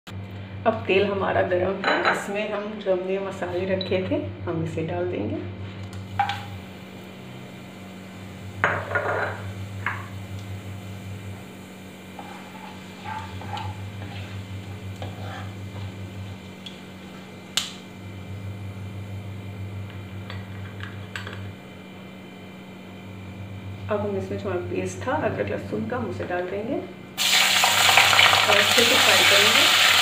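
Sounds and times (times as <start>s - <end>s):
spatula scraping a pan: 12.1s - 16.0s.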